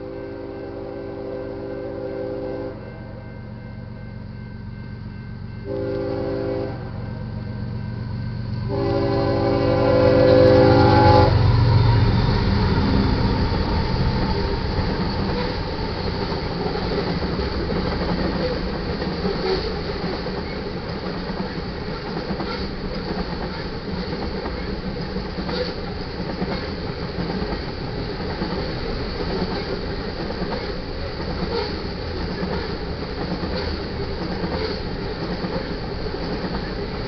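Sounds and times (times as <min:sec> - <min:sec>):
train horn blasts: 0:00.0 - 0:03.4, 0:05.6 - 0:07.2, 0:08.6 - 0:12.2
train wheel rumble: 0:00.0 - 0:37.0
locomotive deep rumble: 0:03.6 - 0:37.0.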